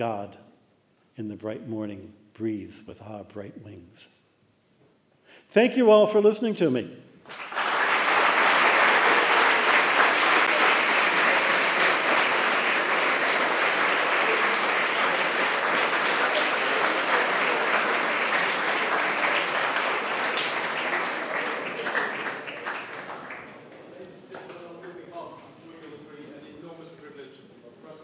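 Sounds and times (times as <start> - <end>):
audience applauding: 7.3 - 24.5.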